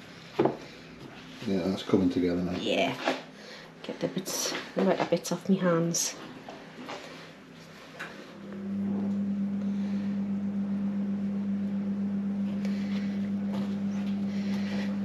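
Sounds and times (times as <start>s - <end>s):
steady low hum: 5.6s - 15.0s.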